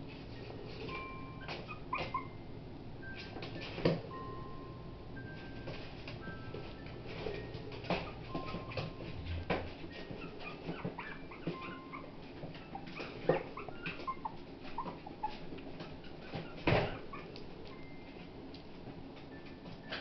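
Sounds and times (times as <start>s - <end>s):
puppy whimpering: 1.2s - 2.4s, 7.8s - 18.0s.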